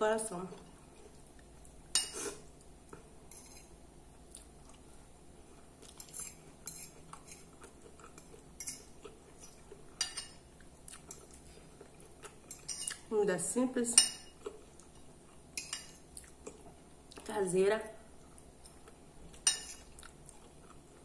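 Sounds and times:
fork scraping glass plate: 0:03.3 - 0:03.7, 0:06.0 - 0:07.5, 0:19.4 - 0:19.9.

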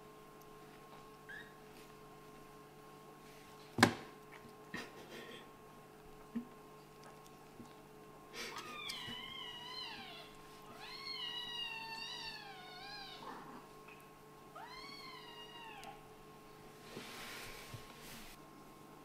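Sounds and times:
kitten meowing: 0:08.6 - 0:13.3.

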